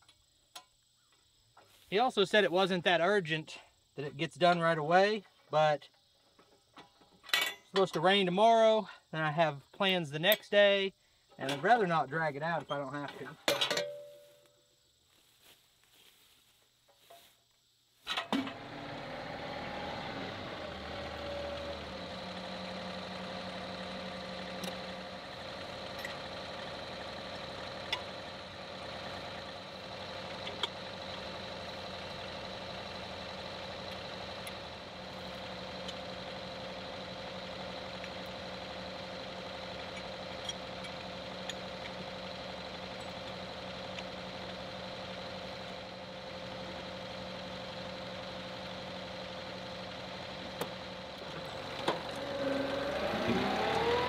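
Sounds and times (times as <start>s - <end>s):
tractor diesel engine idling: 18.3s - 54.0s.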